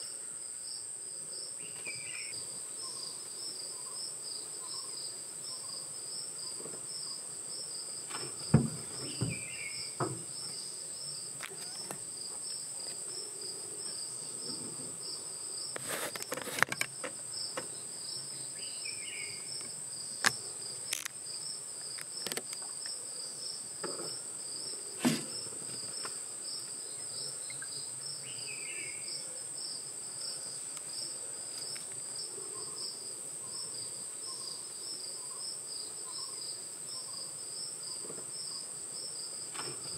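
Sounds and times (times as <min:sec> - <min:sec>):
insects shrilling: 0:08.0 - 0:12.6
sharp knocks: 0:08.1 - 0:10.3.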